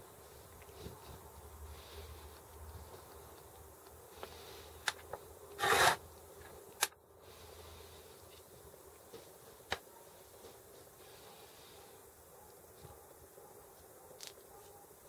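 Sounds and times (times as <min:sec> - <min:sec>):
short rubbing scrape: 0:05.6 - 0:06.0.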